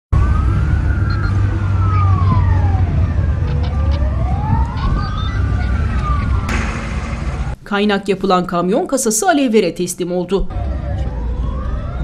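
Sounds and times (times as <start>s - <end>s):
fire engine siren wailing: 0.1s - 6.5s, 10.5s - 12.0s
low rumble: 2.2s - 7.8s.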